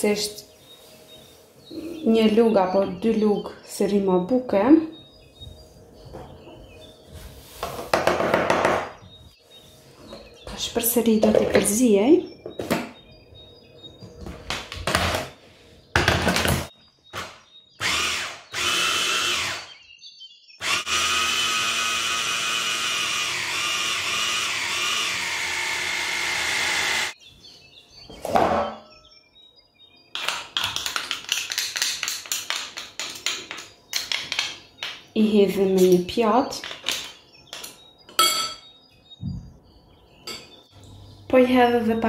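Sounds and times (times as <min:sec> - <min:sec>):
electric chopper grinding: 0:20.6 - 0:27.2.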